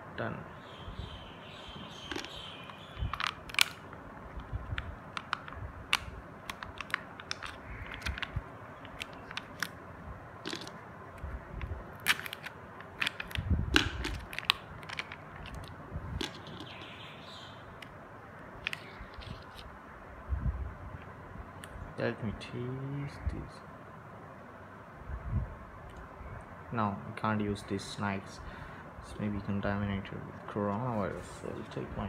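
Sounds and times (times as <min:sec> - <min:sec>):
foil seal crinkling: 0:02.1 - 0:09.8, 0:10.4 - 0:10.8, 0:12.0 - 0:16.8.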